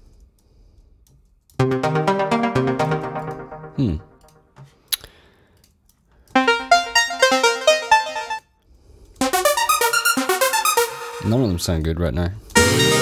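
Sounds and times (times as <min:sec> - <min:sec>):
synth arpeggio: 0:01.6 - 0:04.5, 0:06.4 - 0:08.4, 0:09.2 - 0:11.4.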